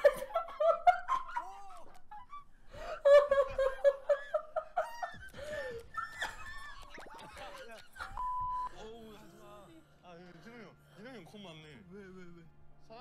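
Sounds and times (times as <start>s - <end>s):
stifled laughter: 0.0s - 8.6s.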